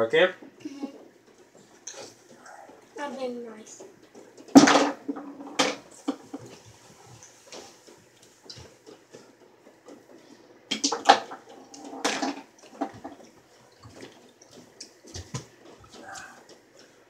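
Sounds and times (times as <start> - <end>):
balls clacking together: 3.7 - 6.6, 7.6 - 16.9
balls knocking wooden rails: 3.8 - 6.6, 10.7 - 13.4.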